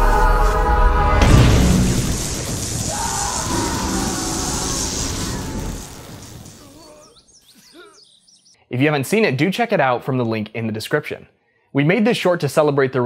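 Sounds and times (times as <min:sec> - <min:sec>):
film music: 0:00.0 - 0:04.7
heavy boom: 0:01.1 - 0:06.8
crackling electricity hiss: 0:01.2 - 0:07.5.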